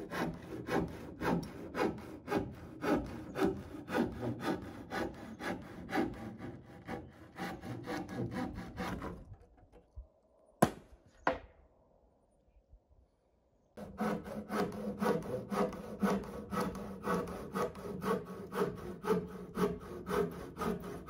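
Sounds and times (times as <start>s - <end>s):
hand saw cutting wood: 0.0s - 9.5s, 13.8s - 21.0s.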